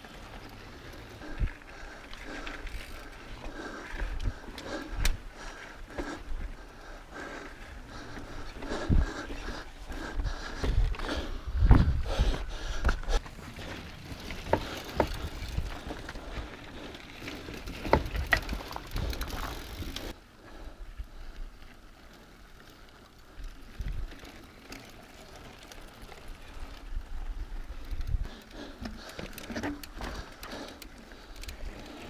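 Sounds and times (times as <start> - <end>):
bike knocks and rattles over rock: 17.4 - 19.8.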